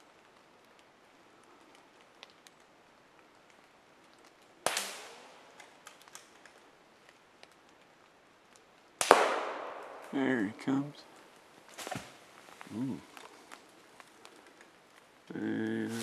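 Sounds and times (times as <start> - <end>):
faint ticks: 0.2 - 4.5
rifle shot echoing: 4.7 - 5.4, 9.0 - 10.2.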